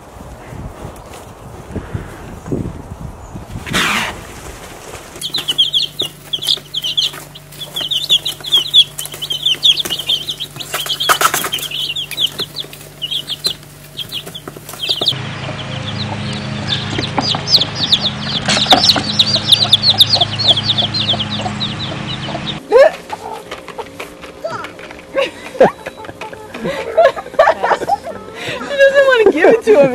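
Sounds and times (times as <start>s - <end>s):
steady low hum: 0.0s - 28.8s
chicks peeping: 5.0s - 24.4s.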